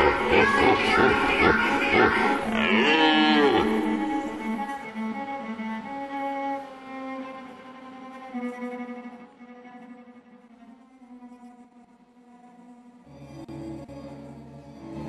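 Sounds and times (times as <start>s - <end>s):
bowed cello low notes: 0.0s - 10.4s.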